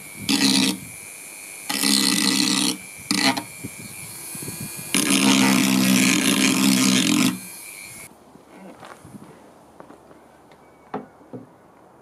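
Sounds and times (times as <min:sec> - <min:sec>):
rotary tool whining: 0:00.0 - 0:08.1.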